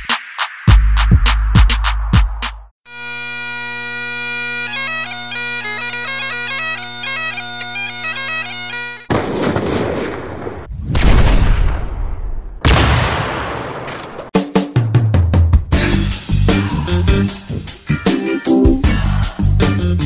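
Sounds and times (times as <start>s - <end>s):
bagpipes playing: 2.8s - 9.1s.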